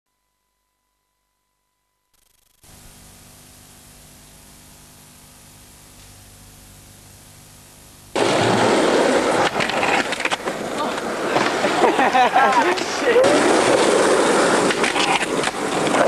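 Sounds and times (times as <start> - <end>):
faint steady tone: 0.1 - 8.2
video tape hiss and hum: 2.1 - 16.0
skateboard wheels on concrete: 8.1 - 16.0.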